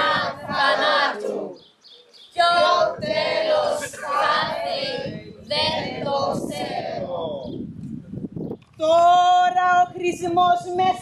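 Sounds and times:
group chanting in unison: 0.0 - 1.6, 2.4 - 7.4.

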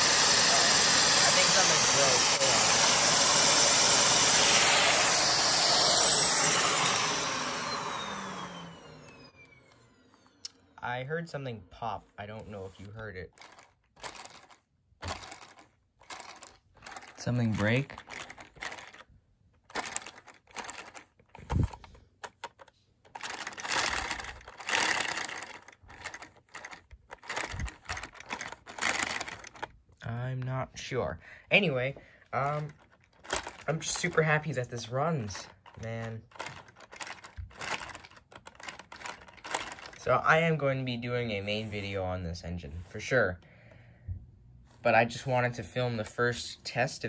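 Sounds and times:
toy engine running fast: 0.0 - 9.4, 13.4 - 19.0, 19.7 - 21.9, 23.1 - 29.7, 32.5 - 40.1
vacuum cleaner suction hiss: 0.0 - 9.4.

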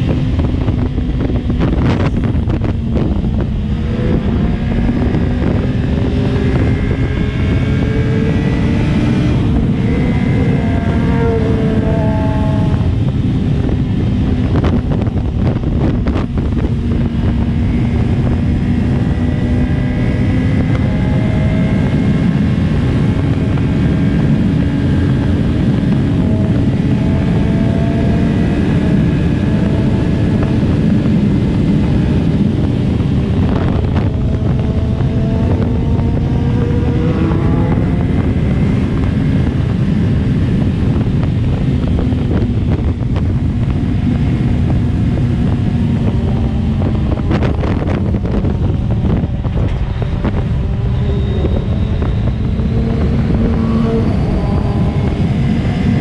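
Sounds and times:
motorcycle engine cruising: 0.0 - 56.0
wind rushing over microphone: 0.0 - 56.0.

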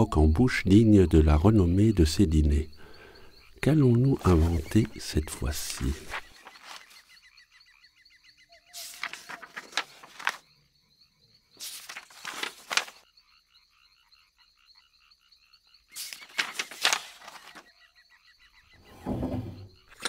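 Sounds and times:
night insect chorus: 0.0 - 20.0
book pages turning: 3.9 - 7.0, 8.8 - 10.4, 11.6 - 13.0, 16.0 - 17.6.

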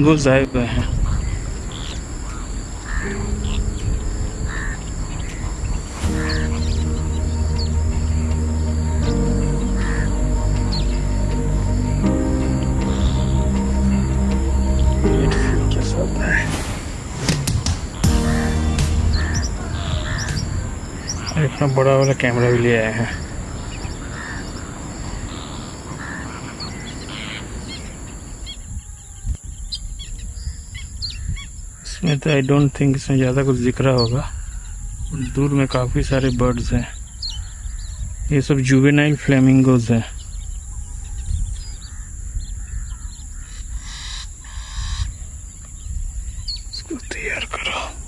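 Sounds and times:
small birds chirping: 0.0 - 16.6, 17.6 - 48.0
insect drone: 0.0 - 48.0
low outdoor rumble: 3.1 - 23.6.

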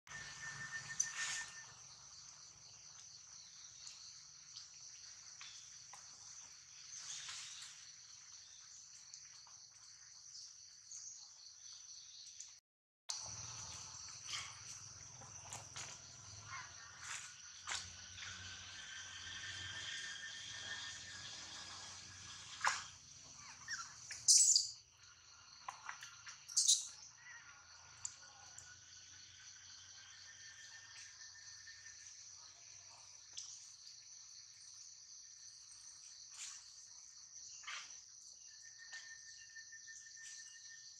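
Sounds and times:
insects shrilling: 18.0 - 24.8.

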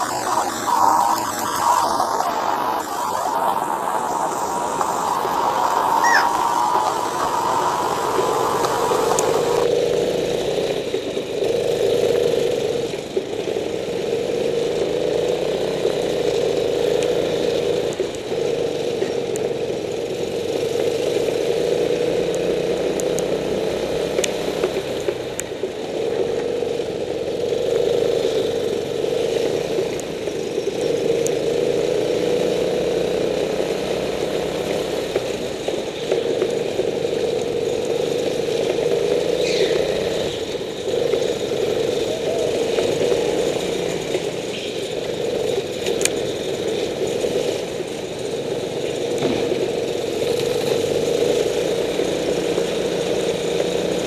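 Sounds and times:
go-kart engine running: 0.0 - 54.0.

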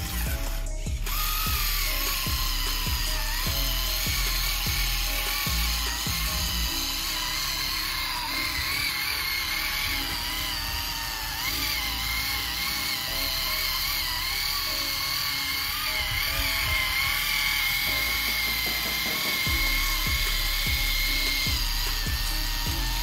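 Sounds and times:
electric gear motors whining: 0.0 - 23.0.

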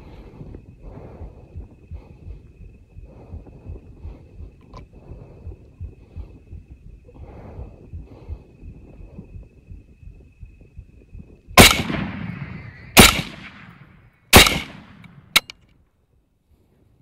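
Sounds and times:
rifle shots echoing: 11.6 - 15.4
rifle click: 14.4 - 15.6.

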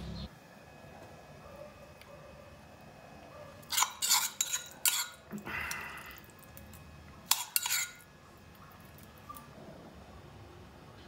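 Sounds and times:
spoon clinking against metal cup: 3.7 - 5.2, 7.3 - 8.0.

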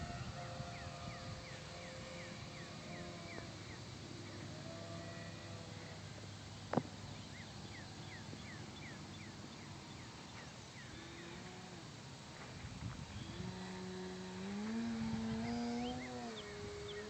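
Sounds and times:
distant electric motor humming: 0.0 - 17.0
bird chirping: 0.1 - 4.6, 6.6 - 11.4, 15.0 - 17.0.

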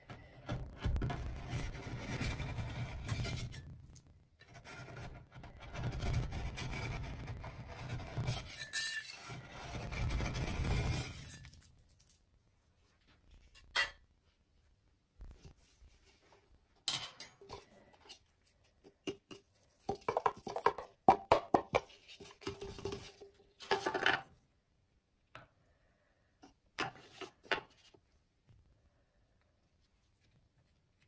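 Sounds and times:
spatulas scraping metal plate: 0.0 - 3.8, 4.4 - 11.6.

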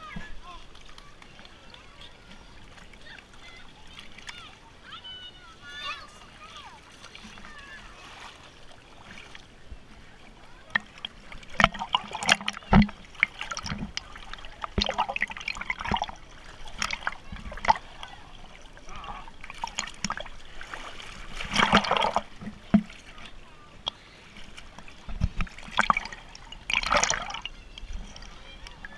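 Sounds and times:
river water splashing: 0.0 - 28.9
voices calling out: 0.0 - 28.9.

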